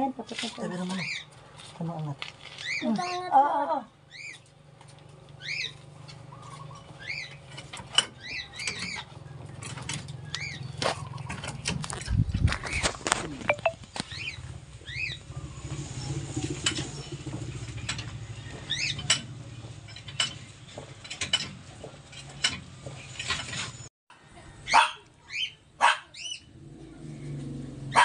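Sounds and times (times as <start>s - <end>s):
clicks and clinks of hand work: 18.9s - 23.7s.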